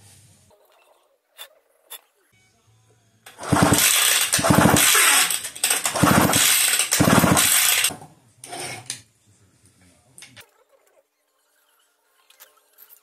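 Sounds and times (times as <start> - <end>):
chainsaw engine cranking: 3.3 - 7.9
recoil starter yanks: 3.3 - 7.9.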